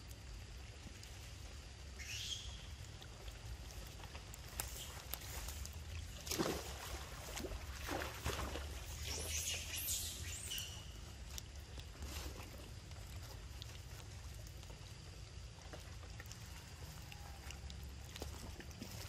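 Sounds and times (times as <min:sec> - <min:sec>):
monkeys splashing in water: 0:01.9 - 0:11.3, 0:16.0 - 0:19.0.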